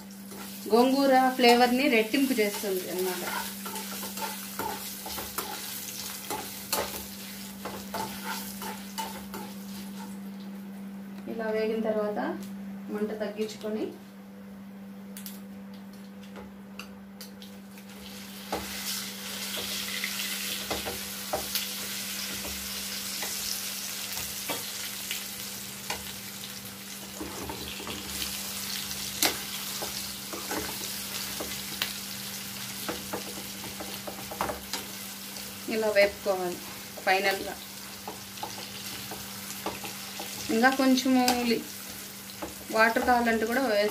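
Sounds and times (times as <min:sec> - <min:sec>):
chutney sizzling in oil: 0:00.0 - 0:10.5, 0:17.7 - 0:43.9
spoon stirring and scraping pan: 0:00.3 - 0:00.6, 0:02.4 - 0:10.2, 0:18.4 - 0:25.2, 0:27.0 - 0:35.5, 0:36.5 - 0:43.6.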